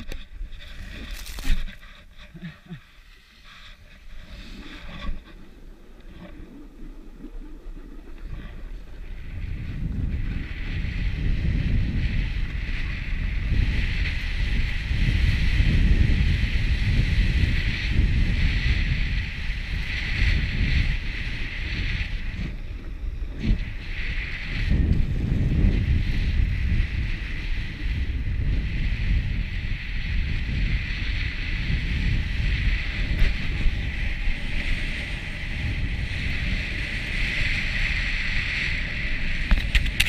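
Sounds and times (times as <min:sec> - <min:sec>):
wind buffeting microphone: 0:00.0 - 0:40.0
skis hissing on packed snow: 0:00.2 - 0:09.0.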